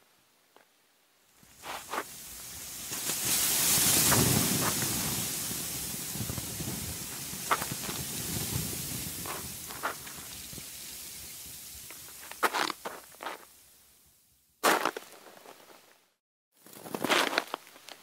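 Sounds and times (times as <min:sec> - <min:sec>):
wind blowing across microphone: 0:01.5 - 0:13.4
footsteps crunching in snow: 0:01.6 - 0:02.2, 0:07.5 - 0:08.0, 0:09.2 - 0:10.3, 0:12.1 - 0:13.5, 0:14.6 - 0:16.0, 0:16.6 - 0:18.0.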